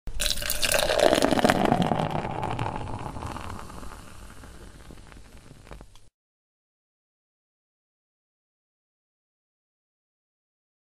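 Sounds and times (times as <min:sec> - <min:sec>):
beer pouring: 0:00.1 - 0:05.8.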